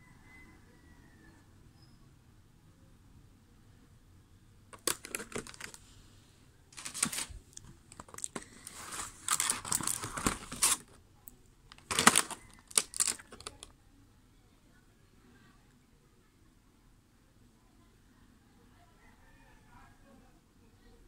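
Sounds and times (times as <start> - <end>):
plastic crinkling and clicking: 4.7 - 5.8, 6.8 - 11.0, 11.7 - 13.7.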